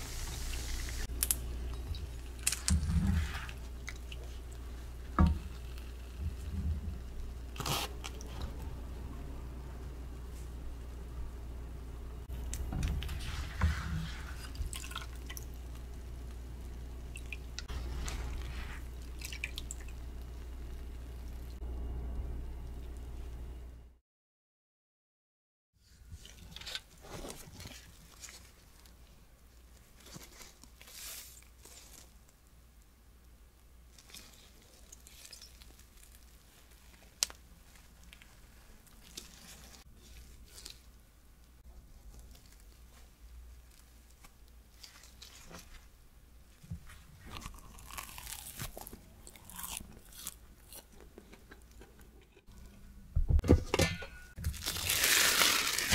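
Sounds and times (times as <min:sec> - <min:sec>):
crust crackling: 0:00.0 - 0:08.6, 0:46.9 - 0:52.8, 0:54.3 - 0:55.9
bread tearing: 0:07.6 - 0:08.3, 0:47.3 - 0:51.5, 0:54.4 - 0:55.9.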